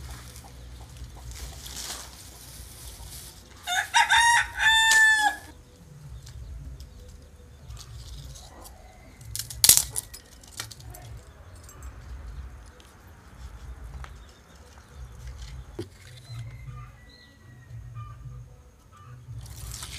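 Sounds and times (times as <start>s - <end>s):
rooster crowing: 3.6s - 5.6s, 16.3s - 18.3s.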